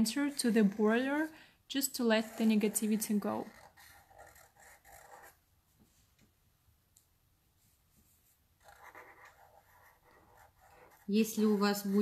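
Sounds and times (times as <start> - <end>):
marker scratching on paper: 0.0 - 1.3, 1.9 - 5.4, 8.0 - 12.0.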